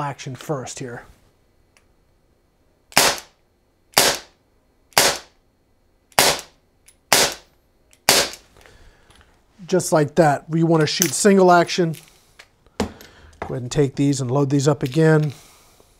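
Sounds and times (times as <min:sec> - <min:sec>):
pellet revolver shots: 0:02.9 - 0:03.3, 0:03.9 - 0:04.3, 0:04.9 - 0:05.3, 0:06.1 - 0:06.5, 0:07.1 - 0:08.4.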